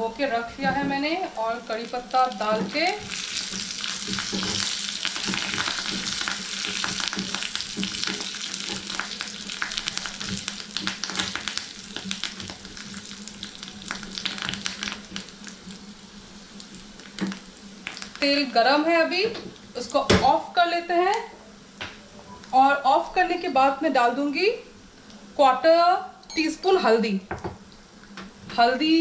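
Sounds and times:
leaves sizzling in hot oil: 0:00.0 - 0:21.2
oil popping: 0:01.7 - 0:15.8.

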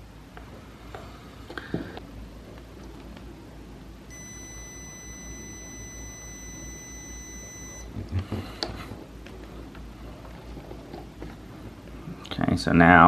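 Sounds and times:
continuity beeper high beep: 0:04.1 - 0:07.9.

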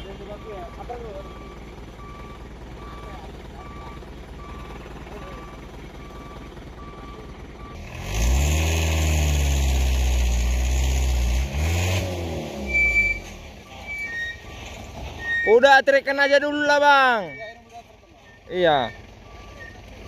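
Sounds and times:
reversing beeper: 0:00.0 - 0:08.4, 0:12.6 - 0:20.0
diesel engine idling and revving: 0:00.0 - 0:20.0.

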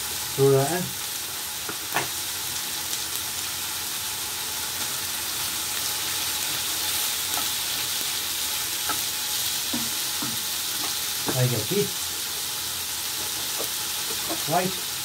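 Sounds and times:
food sizzling in oil: 0:00.0 - 0:15.0
spatula knocking against a pan: 0:09.7 - 0:11.4.

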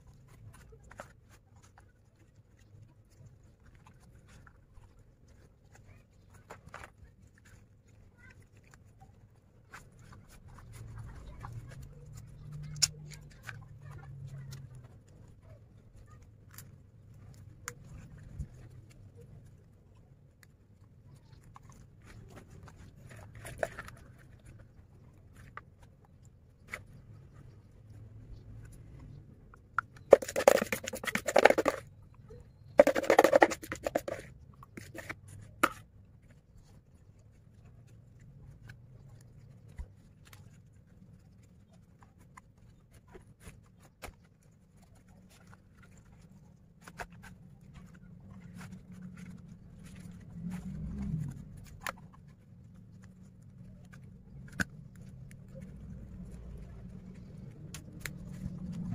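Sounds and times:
paste scraped from plastic basin: 0:30.1 - 0:31.8, 0:32.8 - 0:35.8.

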